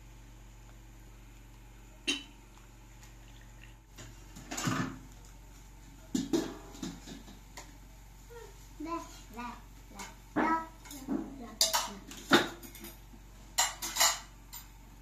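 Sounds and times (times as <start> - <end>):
dishes and pot lid clattering: 13.6 - 14.3.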